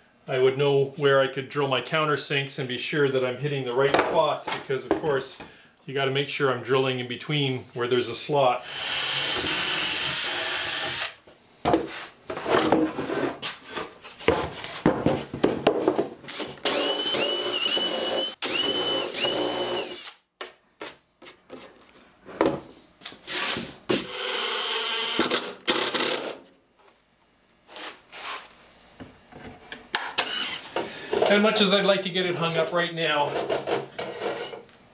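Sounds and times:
cordless drill whining into wood: 0:08.6 - 0:11.2, 0:16.3 - 0:20.2, 0:23.4 - 0:26.2, 0:30.2 - 0:30.7.

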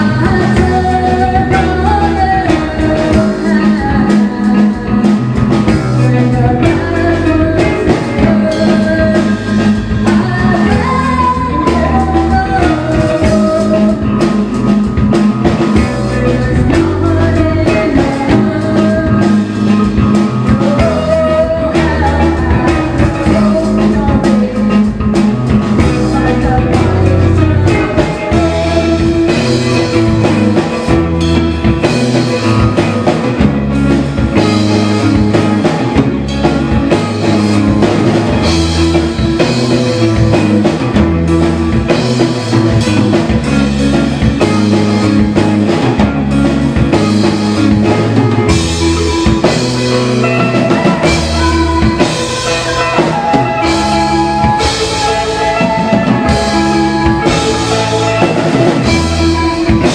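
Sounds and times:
man singing: 0:00.0 - 0:14.4, 0:15.7 - 0:33.4
drums: 0:00.0 - 0:59.9
electric guitars: 0:00.0 - 0:59.9.

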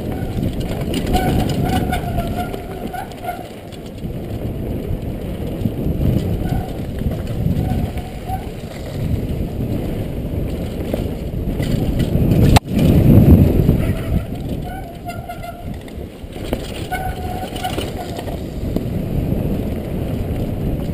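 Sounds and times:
bike tyres grinding over stones: 0:00.0 - 0:20.9
wind buffeting microphone: 0:00.0 - 0:20.9.

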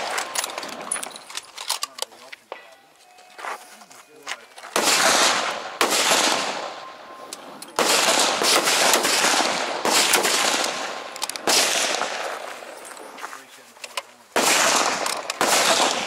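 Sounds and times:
rifle shots echoing: 0:04.7 - 0:12.7, 0:14.3 - 0:16.0.

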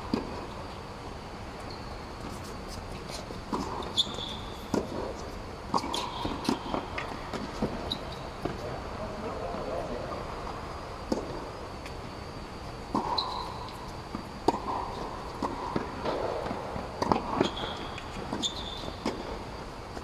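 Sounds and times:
shoe squeaks: 0:01.6 - 0:04.8, 0:07.8 - 0:08.4, 0:13.1 - 0:13.9, 0:17.4 - 0:19.0
racket hitting tennis ball: 0:03.5 - 0:07.8, 0:12.9 - 0:19.3
ball bouncing on hard court: 0:03.5 - 0:08.6, 0:12.9 - 0:19.3.

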